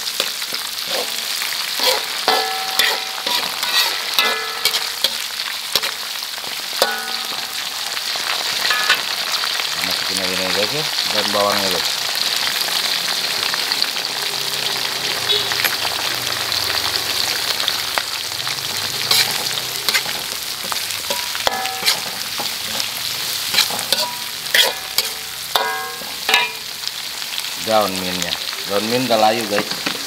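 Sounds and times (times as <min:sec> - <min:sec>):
onions sizzling in oil: 0:00.0 - 0:30.0
metal spatula scraping pan: 0:00.2 - 0:09.2, 0:19.0 - 0:26.7.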